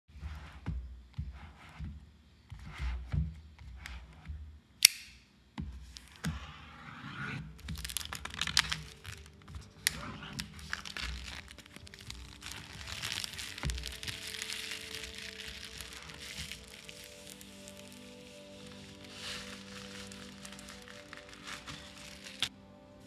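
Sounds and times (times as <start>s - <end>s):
background music: 3.9s - 23.0s
sharp click: 4.8s - 5.2s
plastic shrink-wrap crinkling: 7.5s - 22.5s.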